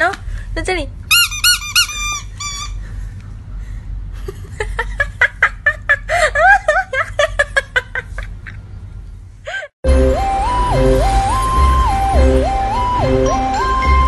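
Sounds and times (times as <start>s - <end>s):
person laughing: 4.1s - 8.6s.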